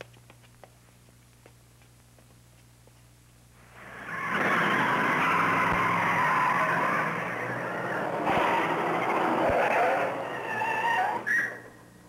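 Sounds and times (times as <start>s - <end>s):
cars driving on dirt road: 3.8s - 12.0s.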